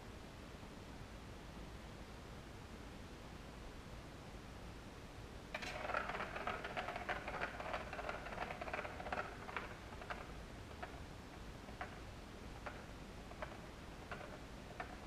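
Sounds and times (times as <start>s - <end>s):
plastic ball rattling around track: 5.5s - 15.0s.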